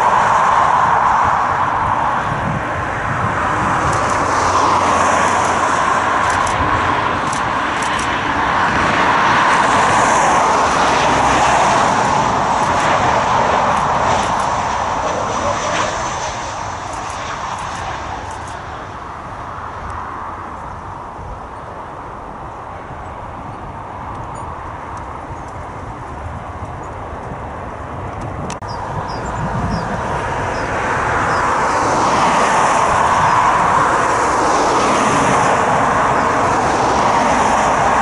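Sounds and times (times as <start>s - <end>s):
jet engines rushing: 0.0s - 38.0s.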